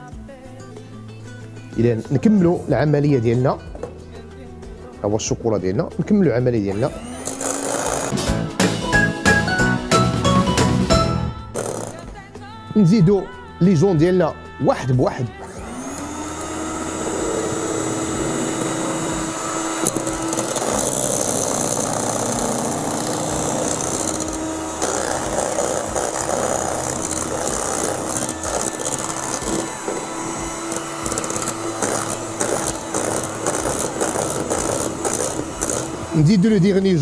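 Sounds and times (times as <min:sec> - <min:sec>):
stand mixer whipping eggs: 0:06.7 - 0:08.2, 0:15.4 - 0:37.0.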